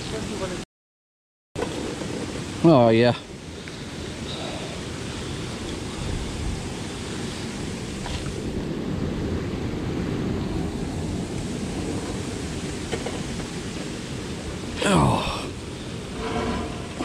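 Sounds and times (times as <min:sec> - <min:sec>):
churning water: 0:01.6 - 0:17.0
wind buffeting microphone: 0:03.4 - 0:14.8.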